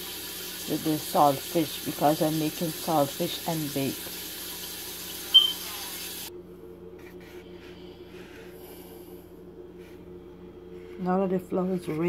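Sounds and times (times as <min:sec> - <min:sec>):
steady low hum: 0:06.3 - 0:12.0.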